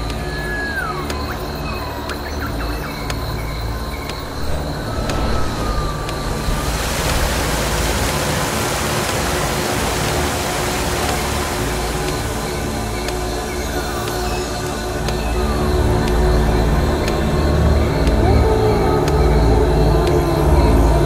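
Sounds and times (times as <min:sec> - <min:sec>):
low held drone: 0:00.0 - 0:21.0
loud wash of hiss: 0:04.0 - 0:15.5.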